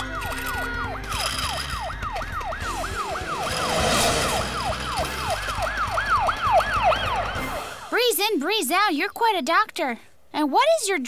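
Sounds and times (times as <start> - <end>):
cartoon ambulance siren: 0.0 - 8.0.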